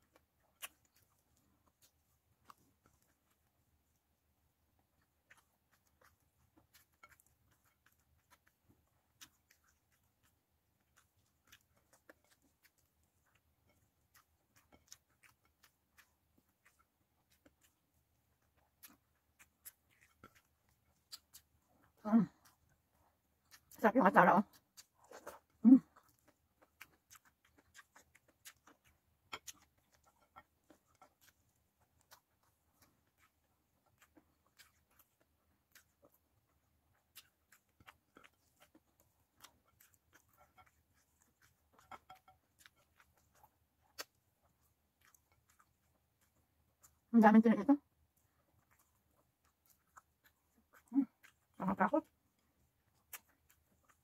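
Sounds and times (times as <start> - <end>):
fingers picking at food: 5.0 - 22.9, 23.5 - 47.0, 52.9 - 54.0
chewing clicks: 5.2 - 21.7, 24.4 - 47.0, 52.8 - 54.0.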